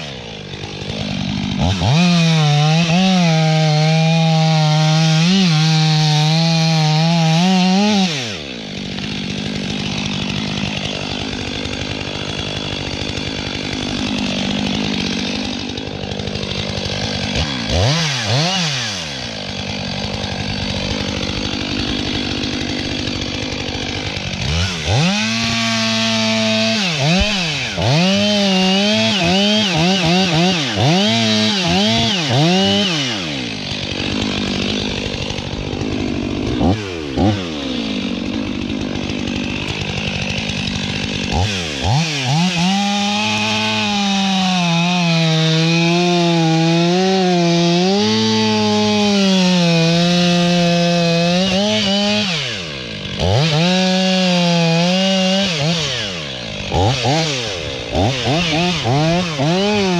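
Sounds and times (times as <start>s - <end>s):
chainsaw cutting tree trunk: 0.0s - 59.9s.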